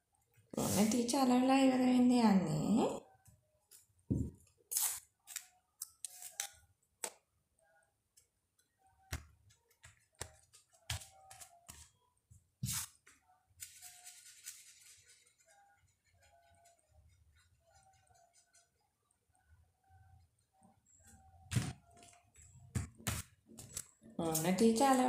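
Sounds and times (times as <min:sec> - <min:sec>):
paper rubbing and rustling: 0:13.6 - 0:15.4.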